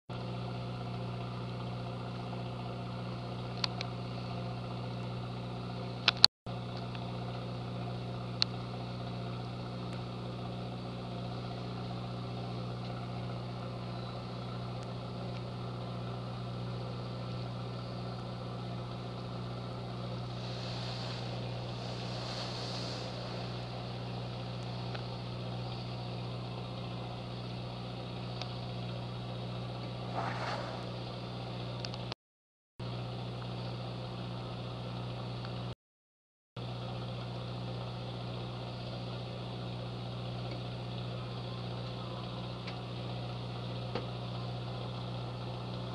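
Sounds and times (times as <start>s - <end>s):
boat engine humming: 18.9s - 28.3s
whale blowing whoosh: 20.0s - 25.3s, 30.0s - 31.4s.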